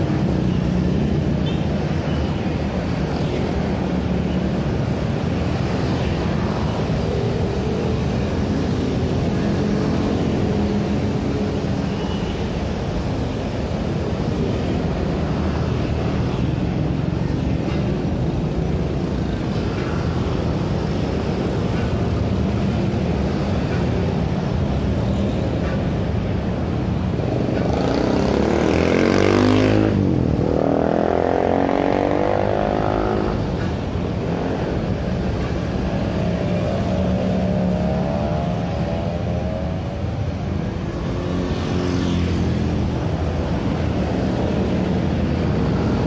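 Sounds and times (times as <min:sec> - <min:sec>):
scooters and cars driving past: 0:00.0 - 0:46.0.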